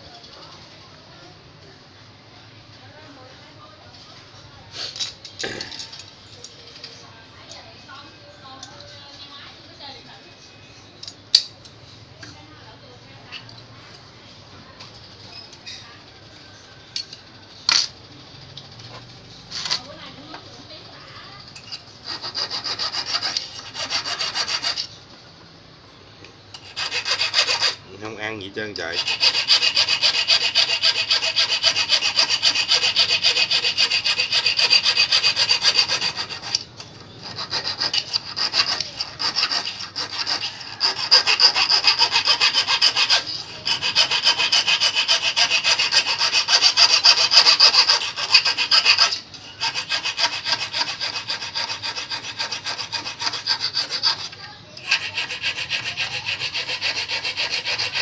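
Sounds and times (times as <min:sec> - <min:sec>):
file rasping on metal hook: 0:21.6 - 0:25.0, 0:26.5 - 0:27.8, 0:28.7 - 0:58.0.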